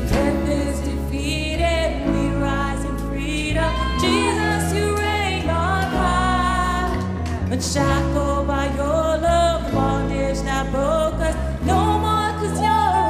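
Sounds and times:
electric bass: 0:00.0 - 0:13.0
woman singing into a microphone: 0:00.0 - 0:13.0.

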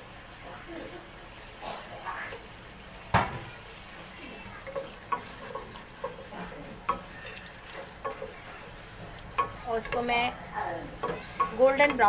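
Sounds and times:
onions sizzling: 0:00.0 - 0:12.0
wooden spatula scraping metal pot: 0:03.4 - 0:12.0.

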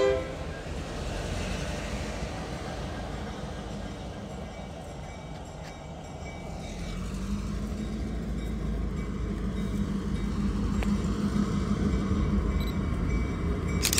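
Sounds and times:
diesel locomotive engine drone: 0:00.0 - 0:13.9.

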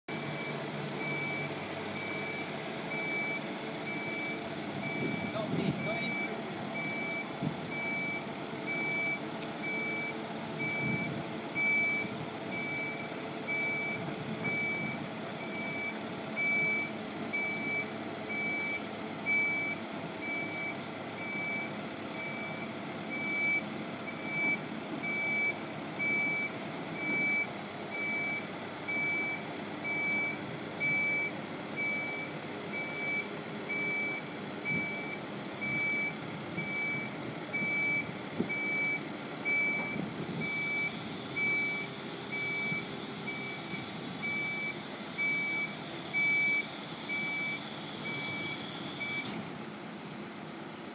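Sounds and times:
truck engine running: 0:00.0 - 0:50.9
truck backup alarm beeping: 0:00.1 - 0:49.6.

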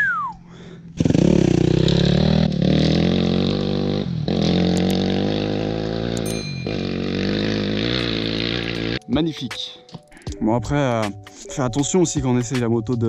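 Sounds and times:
falling whistle: 0:00.0 - 0:00.4
dirt bike engine accelerating: 0:00.1 - 0:09.1
short clicks and chimes: 0:06.2 - 0:06.9.

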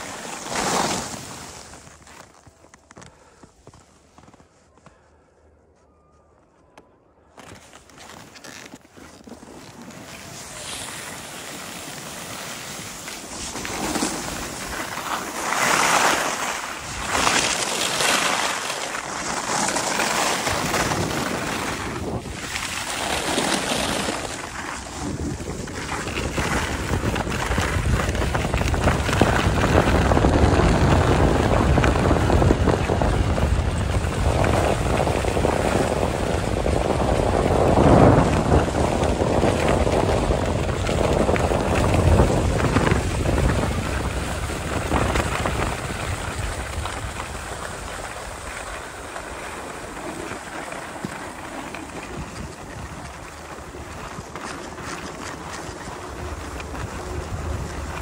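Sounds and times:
skis scraping on snow: 0:00.0 - 0:05.3, 0:07.3 - 0:58.0
wind on microphone: 0:19.4 - 0:58.0.

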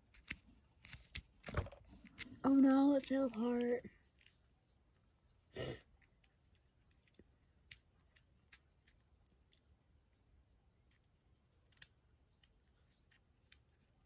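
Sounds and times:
small plastic clicks: 0:00.0 - 0:02.4, 0:10.8 - 0:14.0.

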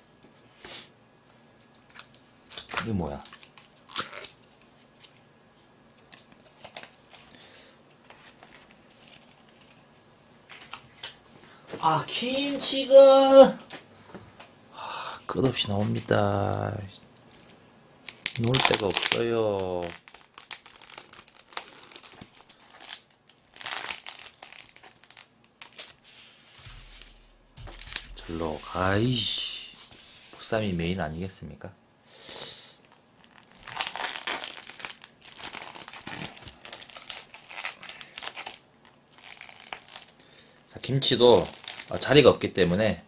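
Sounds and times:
plastic containers crinkling: 0:06.0 - 0:07.4, 0:08.0 - 0:09.9, 0:18.1 - 0:26.0, 0:26.7 - 0:28.6, 0:32.9 - 0:40.2, 0:41.0 - 0:42.2
lettuce leaves rustling: 0:41.0 - 0:42.2.

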